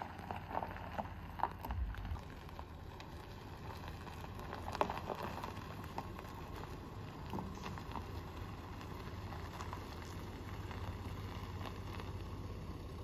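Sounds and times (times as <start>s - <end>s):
microphone rumble: 1.4s - 2.6s.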